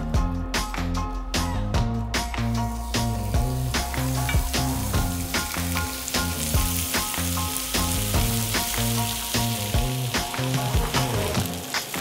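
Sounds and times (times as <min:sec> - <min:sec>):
background music with beat: 0:00.0 - 0:12.0
steak sizzling on grill pan: 0:02.6 - 0:12.0.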